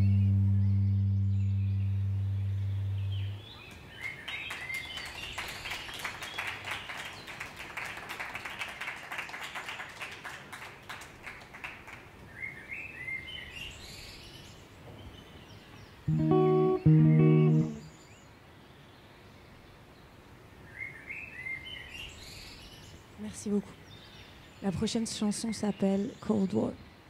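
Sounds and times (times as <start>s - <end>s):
plucked guitar notes: 0.0s - 3.4s, 16.1s - 17.9s
sustained sung note: 0.0s - 3.4s
audience applauding: 4.2s - 12.1s.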